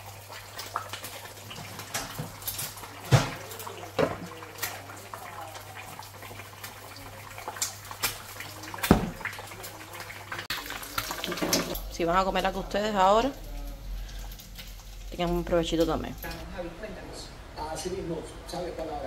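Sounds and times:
steady cooking hiss: 0.0s - 19.0s
utensils knocking and clattering: 11.1s - 11.8s.

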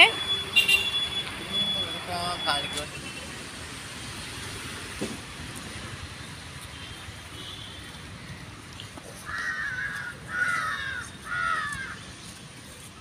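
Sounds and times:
crow cawing: 9.2s - 12.0s.

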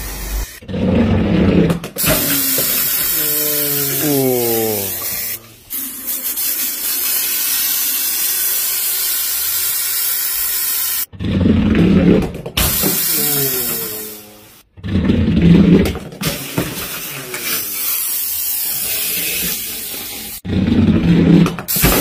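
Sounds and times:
fine jet squirting hiss: 2.0s - 11.1s, 12.7s - 14.4s, 17.0s - 20.4s
soda hissing from bottles: 2.0s - 11.1s, 12.6s - 14.6s, 16.2s - 20.4s.

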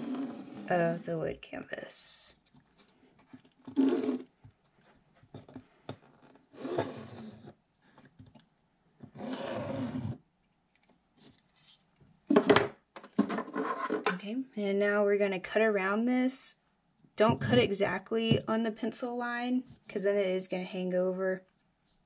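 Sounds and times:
rub or scrape: 0.0s - 1.0s, 3.7s - 4.3s, 6.5s - 7.5s, 9.2s - 10.2s
pen scratching on canvas: 3.7s - 4.3s.

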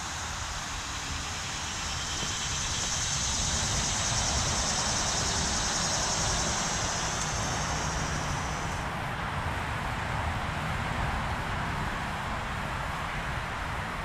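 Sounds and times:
cicadas buzzing: 0.0s - 8.9s.

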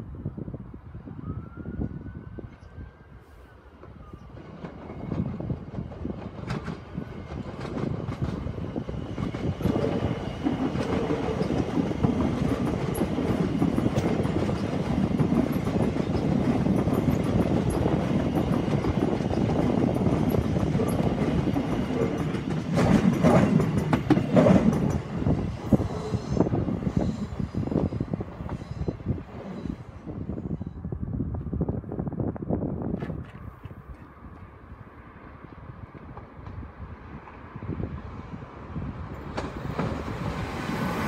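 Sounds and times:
train clattering clicks: 3.8s - 26.1s, 39.1s - 41.0s
train wheels rumbling on rail: 3.8s - 41.0s.

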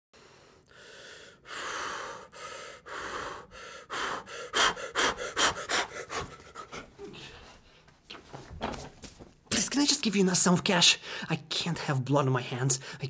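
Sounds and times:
man breathing hard: 0.2s - 7.9s.

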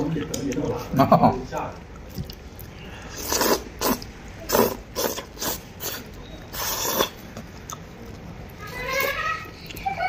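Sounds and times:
person slurping noodles: 3.0s - 7.2s.

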